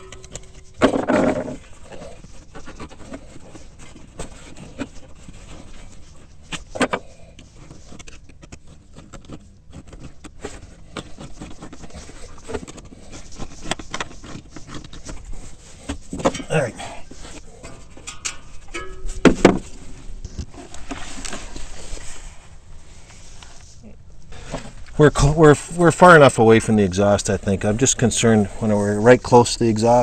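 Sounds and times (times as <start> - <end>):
scraping of parts: 0.0 - 25.0.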